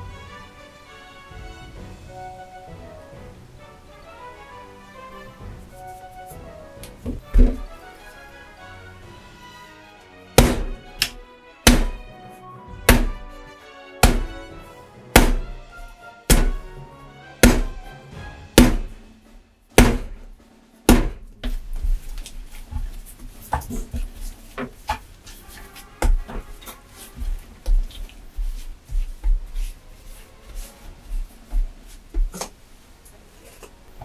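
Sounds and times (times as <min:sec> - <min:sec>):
background music: 0:00.0 - 0:34.0
dough thumping on wooden board: 0:10.4 - 0:12.1, 0:12.8 - 0:13.3, 0:14.0 - 0:14.4, 0:15.1 - 0:15.6, 0:16.3 - 0:16.7, 0:17.4 - 0:17.9, 0:18.6 - 0:19.0, 0:19.7 - 0:21.6.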